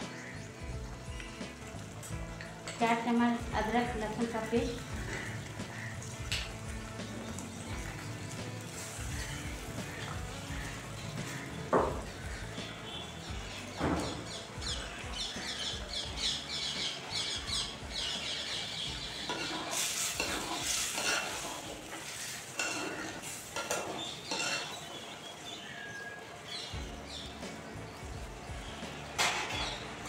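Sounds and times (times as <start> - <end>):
gravy sizzling: 0.0 - 30.0
metal spatula scraping a pan: 19.3 - 24.8.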